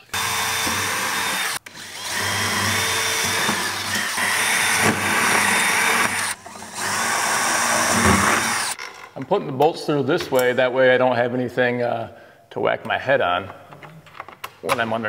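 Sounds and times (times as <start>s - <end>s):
cordless drill running: 0.0s - 8.8s.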